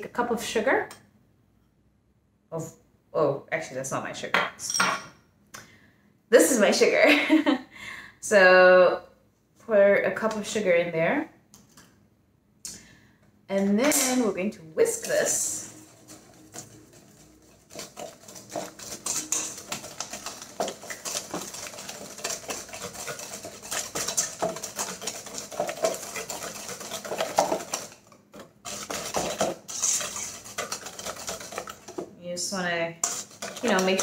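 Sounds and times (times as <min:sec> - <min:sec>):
whisk beating in metal bowl: 0:14.9 - 0:32.1, 0:33.0 - 0:34.0.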